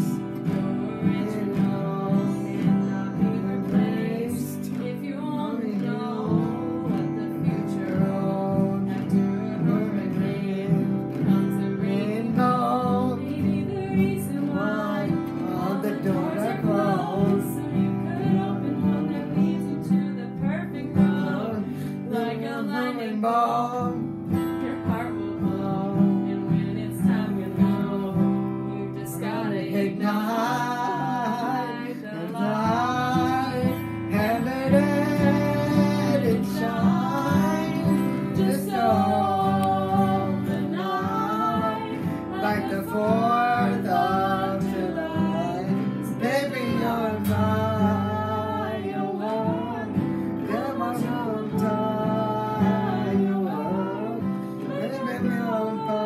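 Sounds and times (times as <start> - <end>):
acoustic guitars strummed: 0.0 - 56.0
person singing: 0.0 - 56.0.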